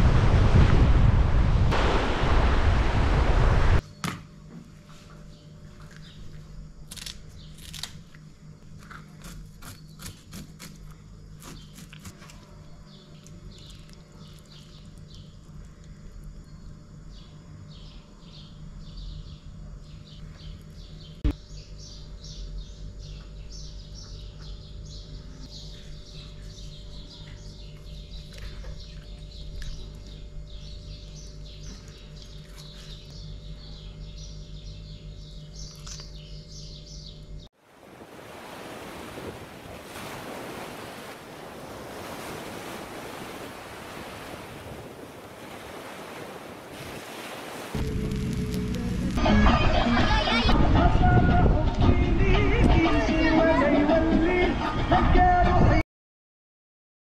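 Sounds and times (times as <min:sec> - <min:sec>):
surf: 0:00.0 - 0:03.8, 0:37.7 - 0:55.8
wind on microphone: 0:00.0 - 0:03.8, 0:49.9 - 0:55.8
small birds chirping: 0:08.7 - 0:37.5.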